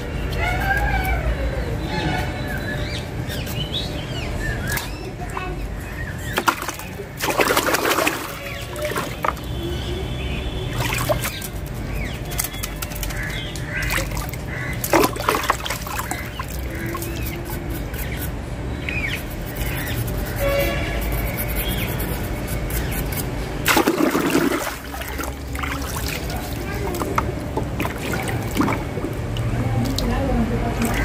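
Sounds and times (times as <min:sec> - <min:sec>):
water sloshing in a tub: 0:06.2 - 0:18.2, 0:23.6 - 0:31.0.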